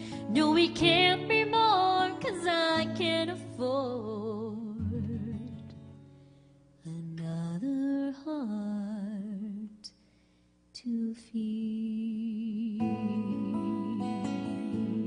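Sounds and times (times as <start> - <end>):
acoustic guitar chord: 0.0 - 7.0, 12.6 - 15.0.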